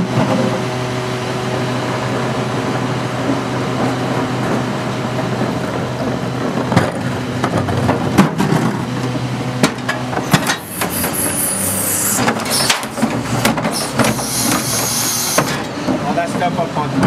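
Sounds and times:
garbage truck engine running: 0.0s - 17.0s
trash cart knocks and clanks: 6.5s - 9.0s, 9.6s - 11.1s, 12.2s - 14.7s.

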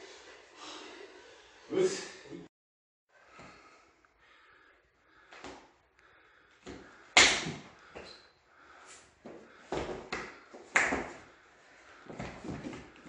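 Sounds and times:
thuds and slaps of strikes: 7.2s - 7.7s.

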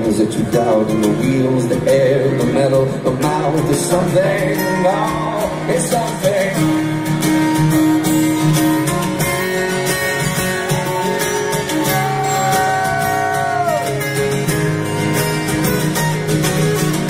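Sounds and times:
strummed acoustic guitars: 0.0s - 17.0s
person singing: 10.8s - 14.0s.

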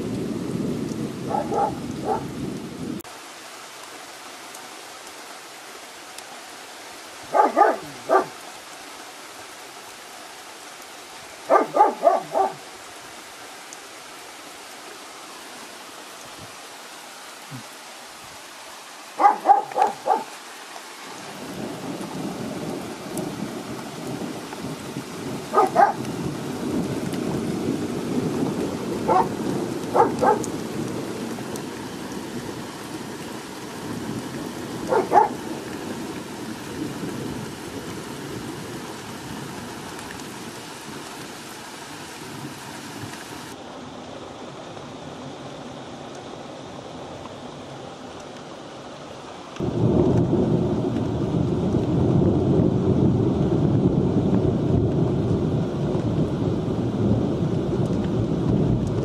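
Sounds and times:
steady rain: 0.0s - 59.0s
dog barking: 1.3s - 2.3s, 7.3s - 8.4s, 11.5s - 12.6s, 19.2s - 20.4s, 25.5s - 26.0s, 29.1s - 30.5s, 34.9s - 35.5s
rolling thunder: 21.3s - 31.4s, 49.6s - 59.0s.

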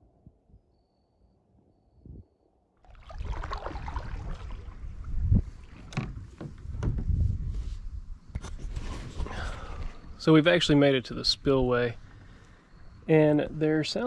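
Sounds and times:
paddle splashing water: 2.8s - 6.8s
wind rumbling on microphone: 2.9s - 10.2s.

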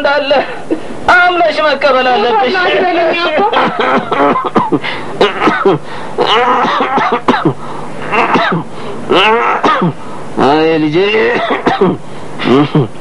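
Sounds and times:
sharp breaths: 4.8s - 5.2s
person making broken vocal sounds: 6.2s - 6.9s, 9.1s - 9.6s, 12.4s - 12.9s.

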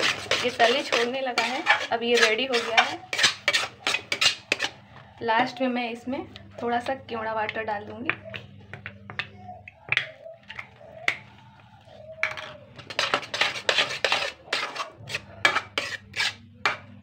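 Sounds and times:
spatula scraping a steel pan: 0.0s - 4.8s, 12.2s - 17.0s.

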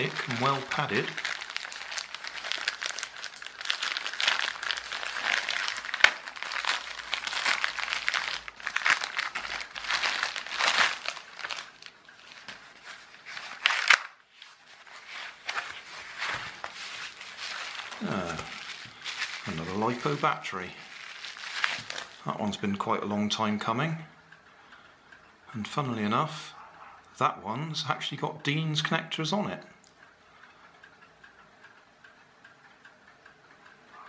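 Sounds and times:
plastic bag crinkling and tearing: 0.0s - 22.3s.

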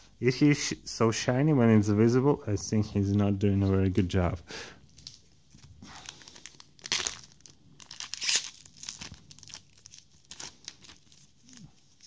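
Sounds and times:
foil pack tearing and crinkling: 6.0s - 11.7s.

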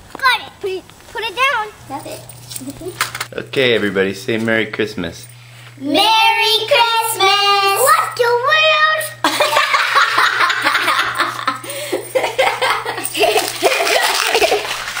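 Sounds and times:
child singing: 5.8s - 9.1s
woman and child laughing: 9.2s - 14.8s.

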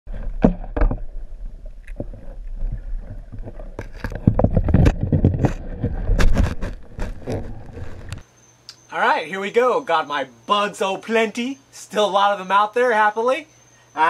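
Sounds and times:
clicks and knocks: 0.1s - 8.2s
low underwater rumble: 0.1s - 8.2s.

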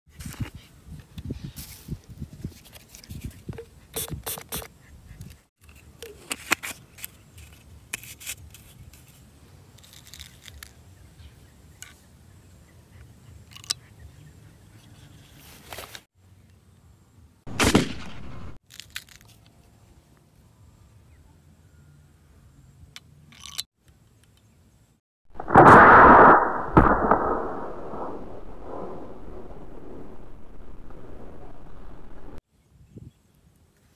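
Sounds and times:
air gun firing burst: 17.5s - 18.6s, 25.4s - 28.9s.

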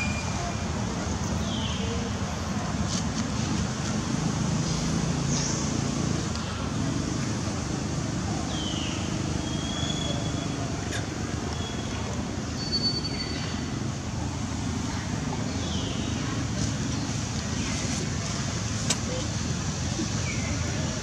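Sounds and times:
distant road traffic rumble: 0.0s - 21.0s.

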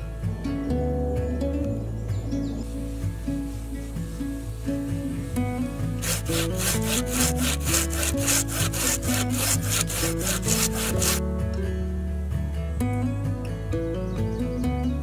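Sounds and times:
hand saw cutting through log: 6.0s - 11.2s.

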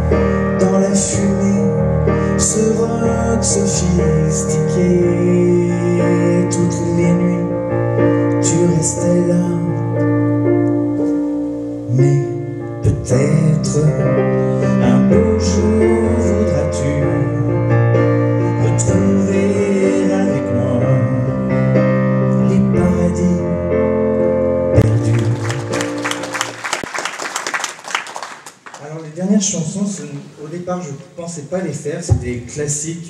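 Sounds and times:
stage piano playing: 0.0s - 33.0s
people clapping: 24.8s - 29.2s.

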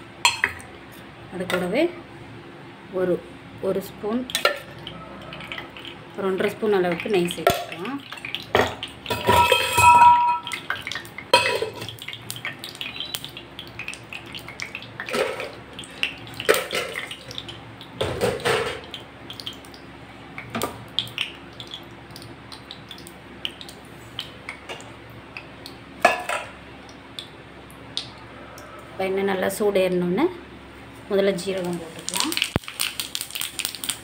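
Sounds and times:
ghee popping and crackling in oil: 4.2s - 28.2s, 31.4s - 34.0s.

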